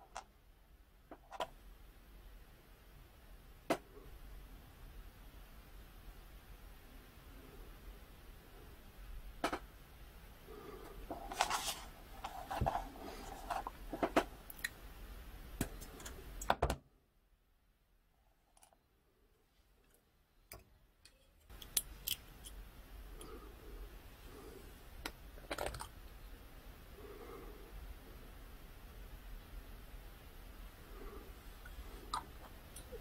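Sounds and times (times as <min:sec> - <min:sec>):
plastic parts clicking and scraping: 0:01.1 - 0:01.5, 0:10.8 - 0:14.7, 0:19.8 - 0:22.6, 0:25.0 - 0:26.0.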